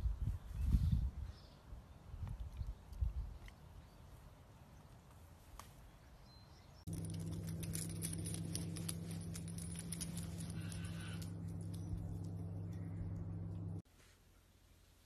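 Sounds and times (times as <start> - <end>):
dog collar tags jingling: 6.9 - 13.7
steady low hum: 6.9 - 13.8.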